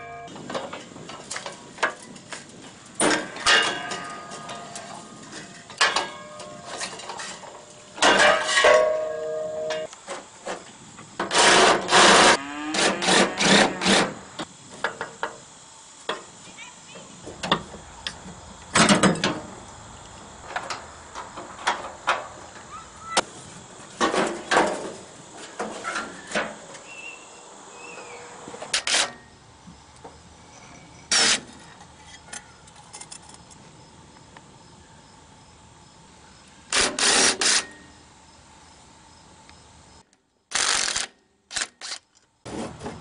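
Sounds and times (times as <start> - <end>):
metal clanks and knocks: 3.0 - 9.9, 18.7 - 19.5, 24.0 - 26.6
metal scraping: 3.2 - 9.9.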